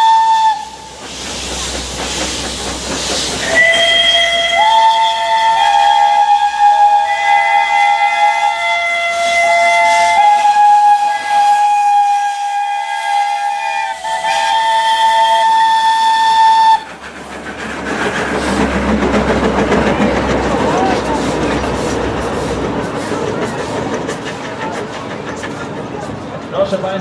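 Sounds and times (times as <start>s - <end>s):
steam locomotive whistles blowing: 0.0s - 1.3s, 3.2s - 16.9s
steam hiss: 0.0s - 26.1s.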